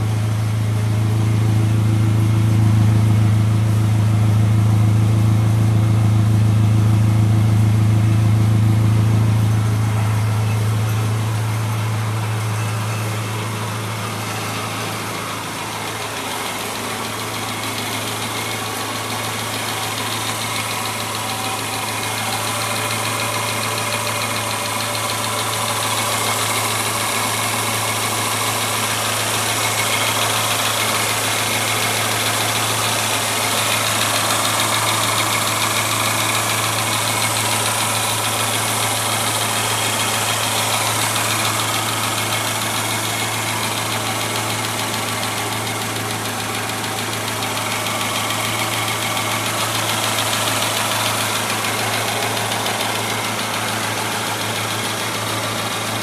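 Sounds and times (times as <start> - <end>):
car engine idling: 0.0 - 56.0.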